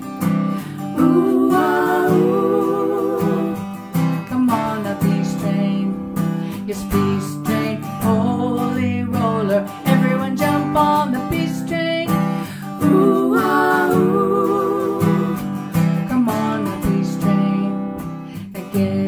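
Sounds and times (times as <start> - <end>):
acoustic guitar strumming: 0.0 - 19.0
woman singing long notes: 1.0 - 3.6, 12.8 - 15.4.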